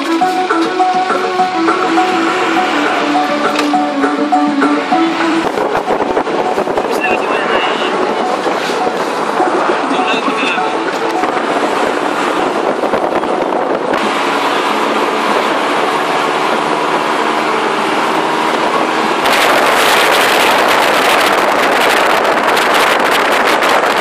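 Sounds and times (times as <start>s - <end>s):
bus engine and road noise: 0.0s - 24.0s
wind rush at window: 4.8s - 24.0s.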